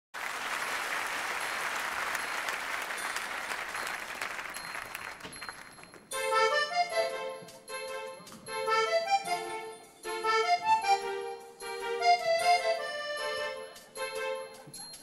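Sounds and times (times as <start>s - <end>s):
audience applauding: 0.2s - 6.1s
music with sustained notes: 6.1s - 14.7s.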